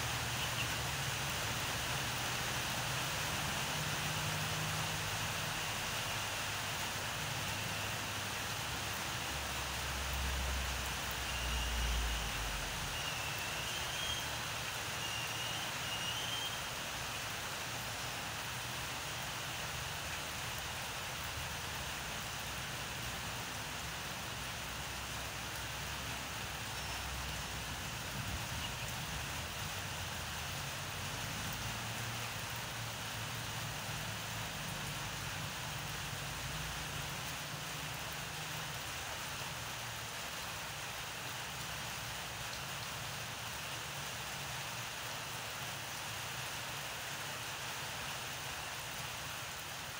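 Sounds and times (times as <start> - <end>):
outdoor background hiss: 0.0 - 49.9.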